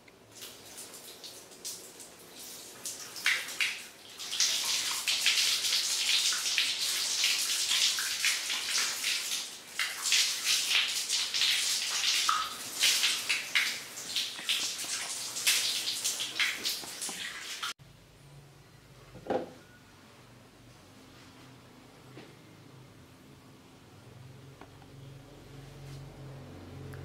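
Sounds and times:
water running from hose: 0:00.3 - 0:17.8.

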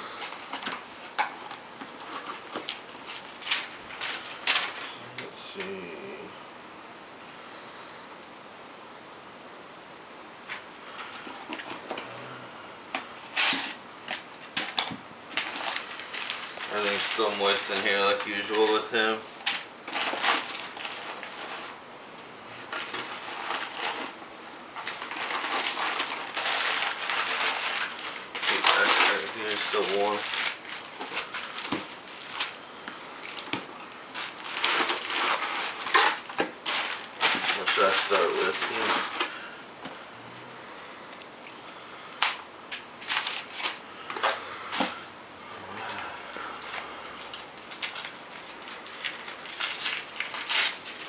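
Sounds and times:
paper and plastic crinkling: 0:00.0 - 0:05.8, 0:12.9 - 0:21.8, 0:22.6 - 0:39.6, 0:42.2 - 0:45.1, 0:45.8 - 0:51.0.

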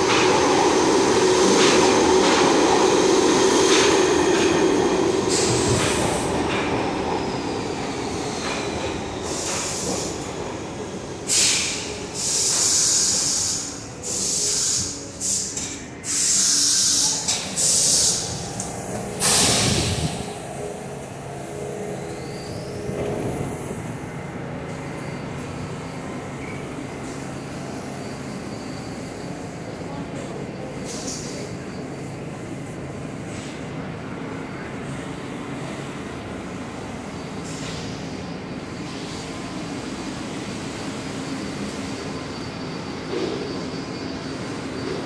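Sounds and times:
subway train rumble: 0:00.0 - 0:45.0
underground station ambience: 0:00.0 - 0:45.0
brake air hiss: 0:11.2 - 0:20.6.

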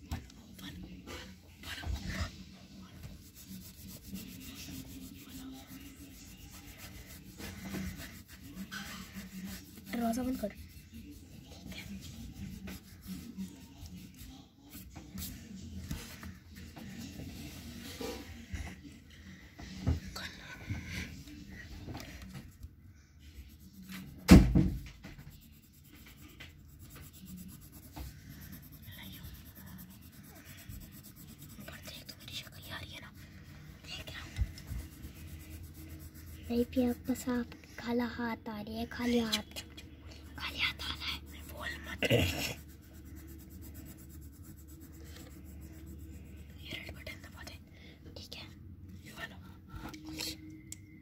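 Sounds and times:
crayon scribbling on paper: 0:01.6 - 0:18.2, 0:22.0 - 0:38.1, 0:40.2 - 0:47.6.

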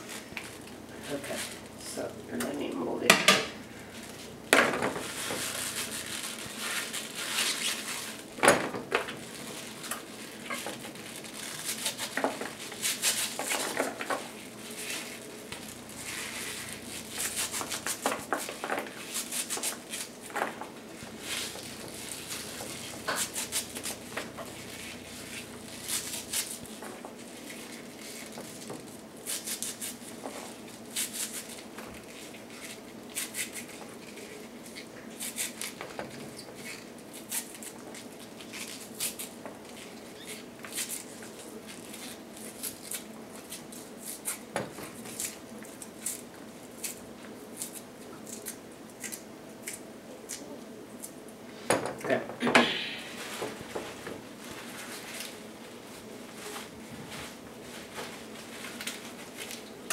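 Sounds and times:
steady low hum: 0:00.0 - 0:40.1
leaf rustle: 0:03.8 - 0:08.3, 0:09.1 - 0:35.8
knife snipping salad leaves: 0:21.2 - 0:26.6, 0:47.6 - 0:51.1.

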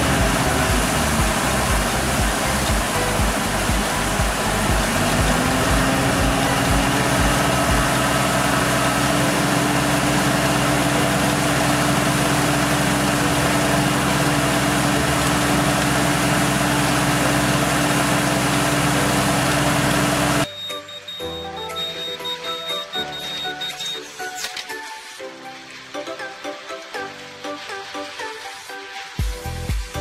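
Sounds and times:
water gushing: 0:00.0 - 0:20.5, 0:21.8 - 0:30.0
tractor engine running: 0:00.0 - 0:24.1.

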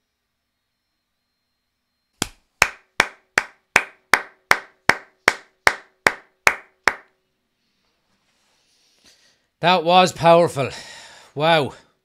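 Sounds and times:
person clapping hands: 0:02.2 - 0:07.1.

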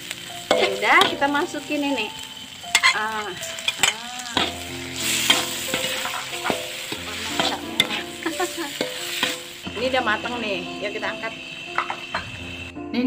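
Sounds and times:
food sizzling in a wok: 0:00.0 - 0:13.0
spatula scraping a pan: 0:00.5 - 0:01.3, 0:02.7 - 0:09.9.

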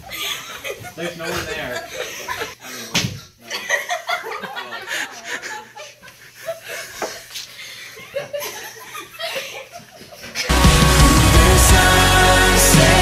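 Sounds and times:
teenagers laughing and giggling: 0:00.0 - 0:02.7, 0:03.4 - 0:10.5.

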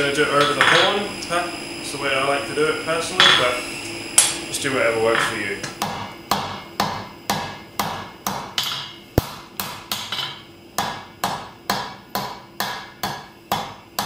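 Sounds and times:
hammer striking steel on anvil: 0:05.1 - 0:14.0.

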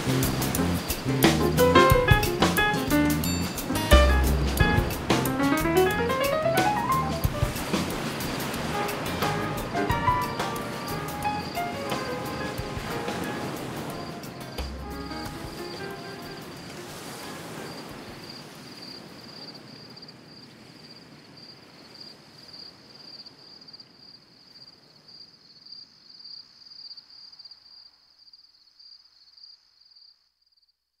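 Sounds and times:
piano and percussion music: 0:00.0 - 0:17.4
high cricket-like trill: 0:00.0 - 0:18.5
soft wash: 0:00.0 - 0:19.8.

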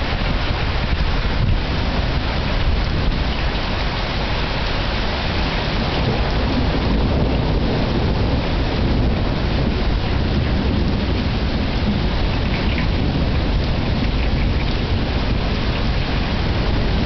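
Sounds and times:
heavy rain falling: 0:00.0 - 0:17.0.

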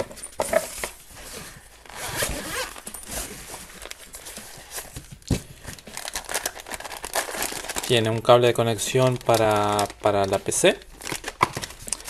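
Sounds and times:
zipper being pulled open: 0:01.9 - 0:03.4.

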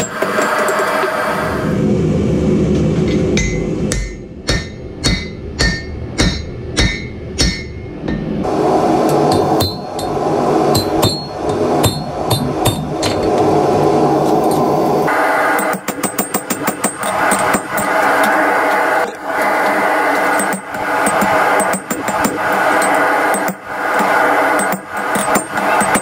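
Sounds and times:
steady rushing noise: 0:00.0 - 0:26.0
hammer striking steel on anvil: 0:03.0 - 0:08.5, 0:09.1 - 0:13.5, 0:15.5 - 0:18.4, 0:19.0 - 0:26.0.

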